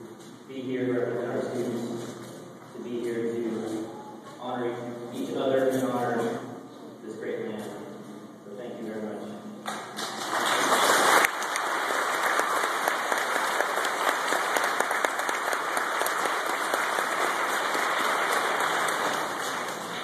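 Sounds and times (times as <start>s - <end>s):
audience applauding: 10.0s - 20.0s.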